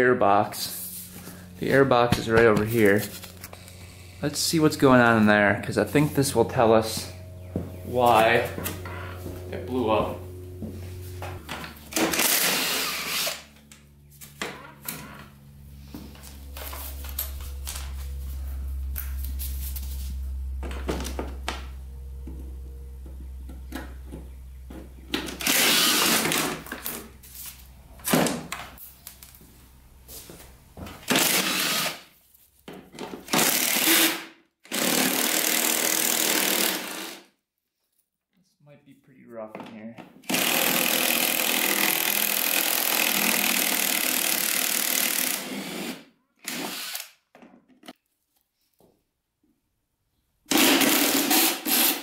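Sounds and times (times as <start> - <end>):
cordless drill spinning out bolts: 11.9 - 13.5, 25.3 - 27.0, 31.0 - 32.1, 33.2 - 37.2, 40.2 - 47.2, 50.5 - 52.0.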